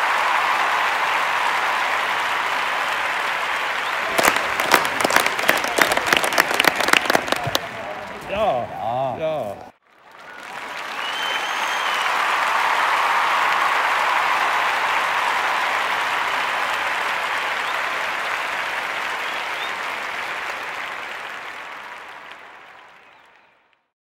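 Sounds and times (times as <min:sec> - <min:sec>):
crowd applauding: 0:00.0 - 0:09.1, 0:09.8 - 0:23.9.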